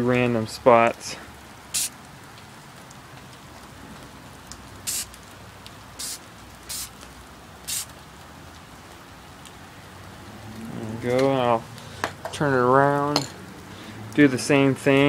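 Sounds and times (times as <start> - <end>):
spray paint can hissing: 1.7 - 2.0, 4.8 - 5.2, 6.0 - 7.0, 7.7 - 7.9.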